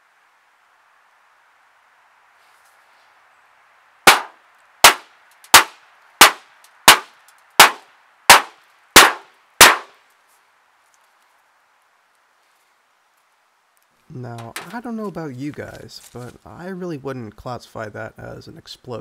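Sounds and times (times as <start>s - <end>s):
hammer striking metal plate: 4.1s - 4.3s.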